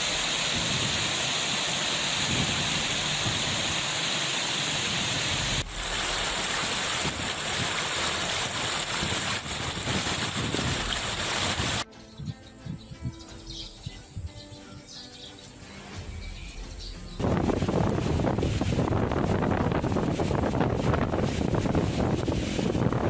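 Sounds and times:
floodwater rushing: 0:00.0 - 0:11.8, 0:17.2 - 0:23.0.

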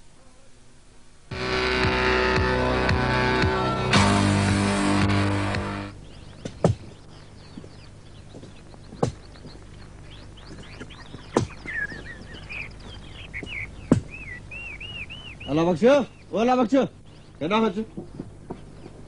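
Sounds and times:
title music: 0:01.3 - 0:06.0
birds chirping: 0:01.3 - 0:19.0.

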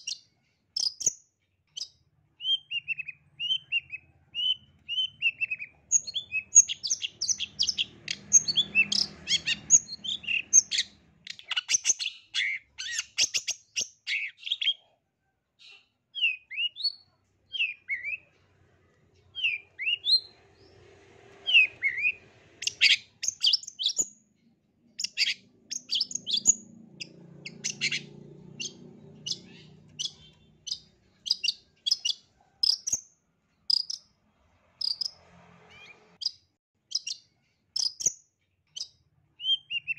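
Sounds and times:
bird singing rapid chatter: 0:00.0 - 0:14.8, 0:15.6 - 0:18.4, 0:19.2 - 0:24.3, 0:24.9 - 0:34.1, 0:34.8 - 0:39.9.

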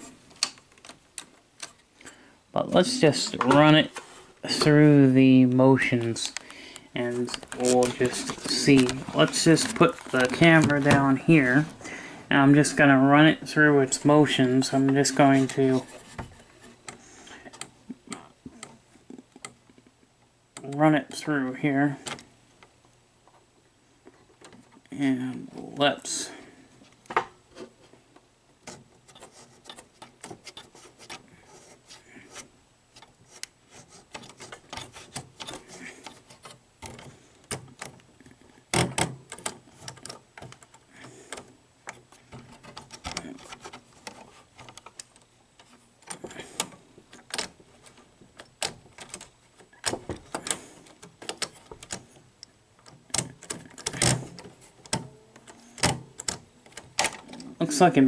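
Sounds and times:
tape mechanism clicks and clacks: 0:05.8 - 0:11.7, 0:28.6 - 0:31.2, 0:32.4 - 0:38.1, 0:38.7 - 0:57.6.

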